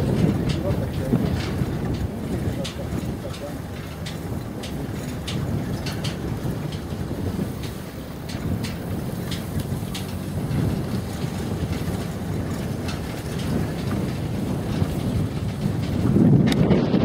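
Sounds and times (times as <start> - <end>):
car rattles over bumps: 0.0 - 17.0
tyre and road rumble: 0.0 - 17.0
wind buffeting microphone: 0.0 - 17.0.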